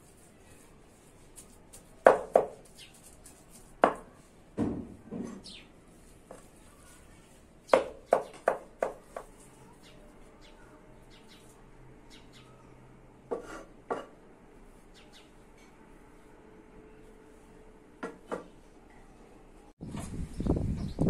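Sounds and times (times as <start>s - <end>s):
cleaver chopping on wooden board: 7.7s - 9.3s.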